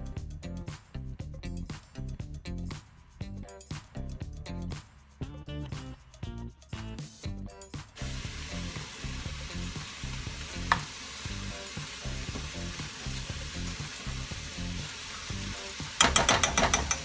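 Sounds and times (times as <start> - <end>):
background music: 0.0 - 17.0
food sizzling in frying pans: 8.0 - 17.0.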